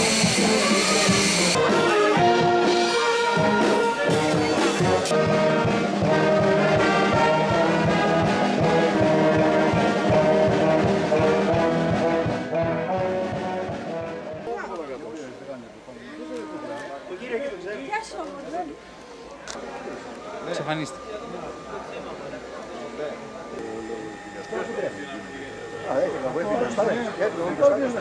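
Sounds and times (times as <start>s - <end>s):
loud hiss: 0.0s - 1.6s
wind band playing held chords: 0.0s - 14.6s, 19.6s - 28.0s.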